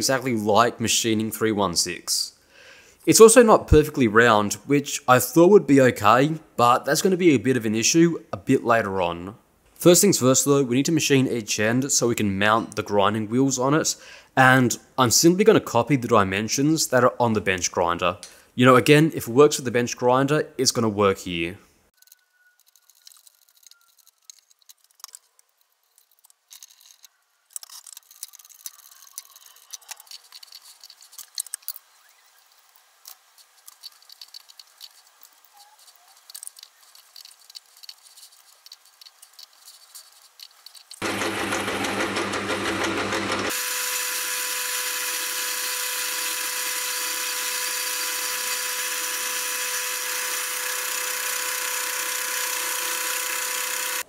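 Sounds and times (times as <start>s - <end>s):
metal lathe running: 41.0s - 54.0s.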